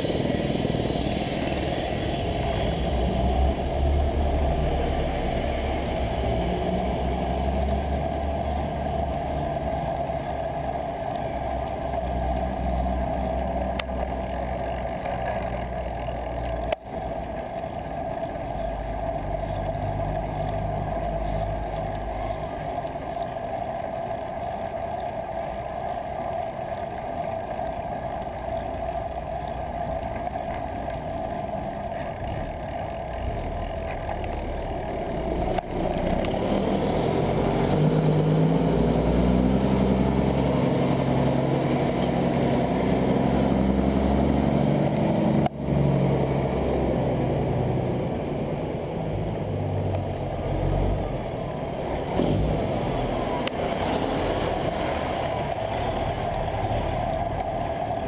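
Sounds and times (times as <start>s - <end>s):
city traffic rumble: 0.0s - 58.0s
vehicle engine drone: 0.0s - 58.0s.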